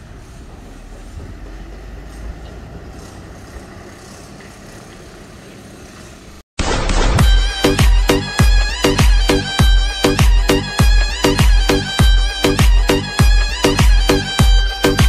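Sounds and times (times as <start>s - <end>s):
bus engine rumble: 0.0s - 6.4s.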